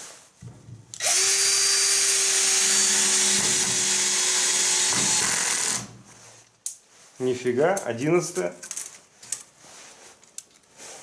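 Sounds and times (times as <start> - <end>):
cordless drill driving screw into wood: 1.0 - 6.0.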